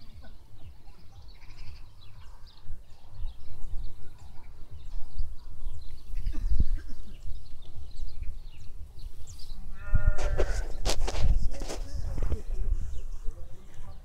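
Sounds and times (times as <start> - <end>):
faint bird chirps: 0.0 - 9.7
wind rumbling on microphone: 0.0 - 14.0.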